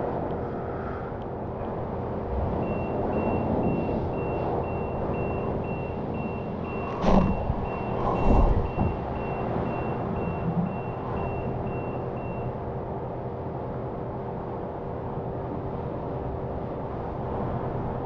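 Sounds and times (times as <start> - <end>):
steady machine hum: 0.0 - 18.0
electronic warning beeper: 2.6 - 12.5.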